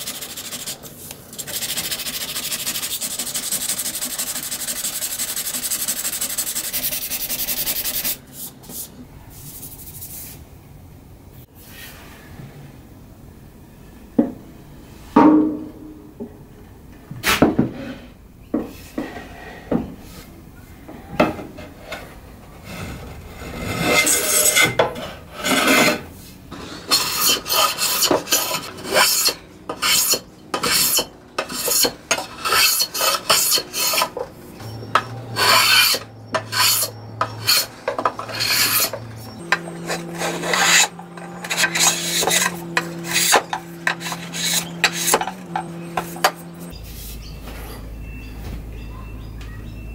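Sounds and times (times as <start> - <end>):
hand plane rasping on wood: 26.6 - 34.2, 35.0 - 46.4.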